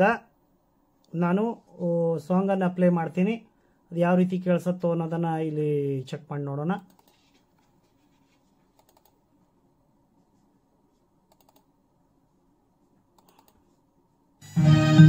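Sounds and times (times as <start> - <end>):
faint computer clicks: 6.8 - 7.7, 8.7 - 9.2, 11.3 - 11.7, 13.1 - 13.7.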